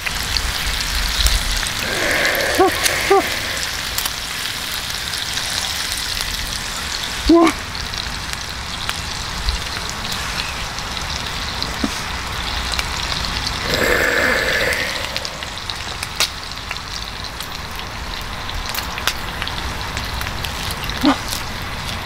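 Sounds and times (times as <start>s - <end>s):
pork sizzling on a griddle: 0.0s - 22.0s.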